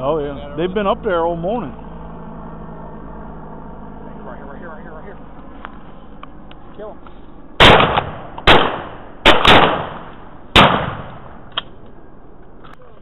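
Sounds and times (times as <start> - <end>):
shotgun blasts with echo: 7.6 - 11.5.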